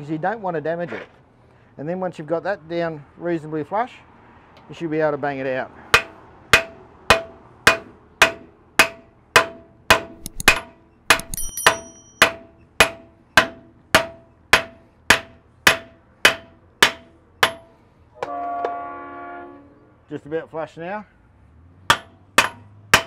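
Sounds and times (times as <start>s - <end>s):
hammer striking metal nut: 6.0s - 17.7s, 21.9s - 23.0s
light hammer taps: 10.2s - 11.9s.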